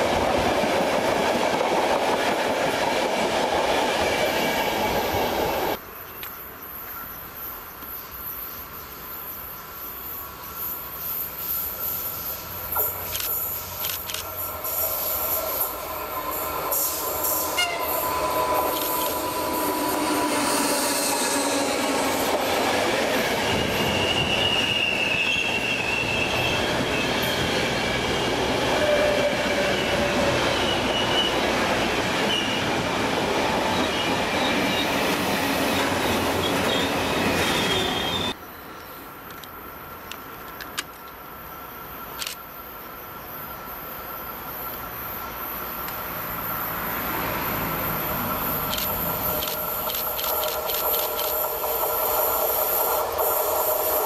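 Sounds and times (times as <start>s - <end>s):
distant freight train: 0.0s - 54.0s
passenger train passing: 0.0s - 54.0s
train wheels squealing: 6.8s - 38.4s.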